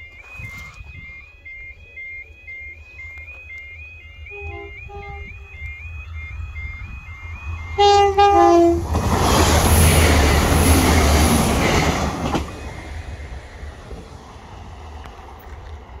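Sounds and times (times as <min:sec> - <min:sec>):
electronic two-tone beep: 0:00.0 - 0:08.5
train passing by: 0:01.0 - 0:16.0
train horn blasts: 0:04.3 - 0:05.7, 0:07.8 - 0:08.9.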